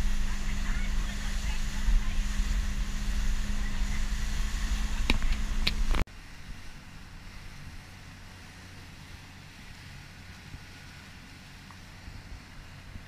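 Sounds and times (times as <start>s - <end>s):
wind on microphone: 0.0s - 6.7s
motorboat engine hum: 0.0s - 13.0s
water wash: 0.0s - 13.0s.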